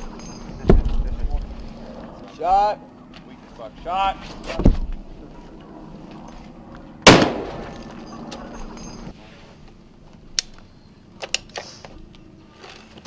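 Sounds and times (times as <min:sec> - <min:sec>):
rifle shot echoing: 0:07.0 - 0:07.8.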